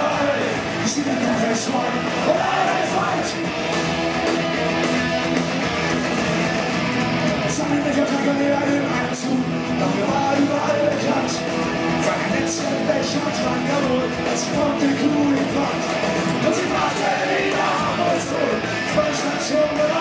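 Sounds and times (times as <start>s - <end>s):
bass guitar: 0.0s - 20.0s
distorted electric guitars: 0.0s - 20.0s
drums: 0.0s - 20.0s
person singing: 12.0s - 20.0s.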